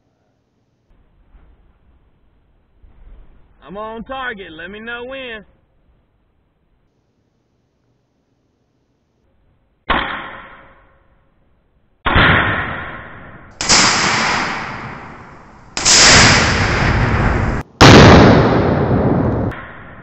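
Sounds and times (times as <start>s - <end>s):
loud explosion booms: 12.1s - 20.0s.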